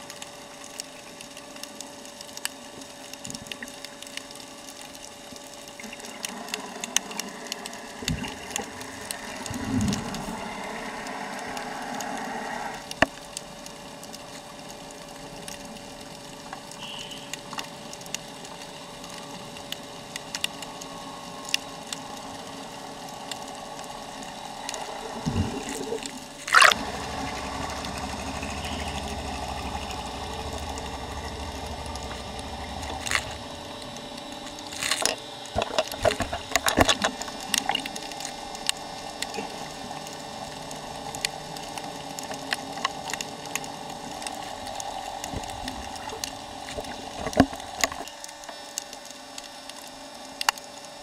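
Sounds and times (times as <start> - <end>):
low hum: 0.0 - 50.9
underwater clicks and crackles: 0.0 - 51.0
muffled underwater rush: 5.4 - 15.3, 20.9 - 49.2.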